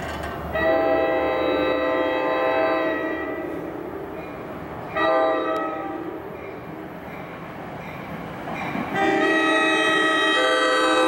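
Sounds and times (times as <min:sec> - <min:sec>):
train horn blasts: 0:00.5 - 0:03.7, 0:04.9 - 0:06.2, 0:08.9 - 0:11.0.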